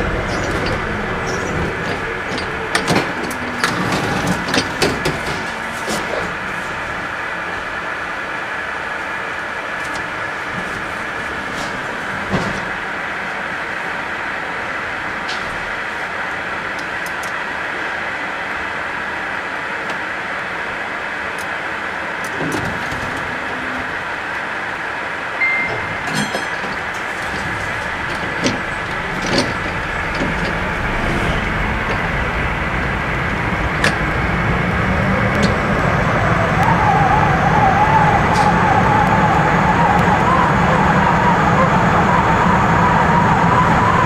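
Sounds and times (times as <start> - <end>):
tram motors and wheels on rails: 0.0 - 44.0
wavering tone: 25.4 - 44.0.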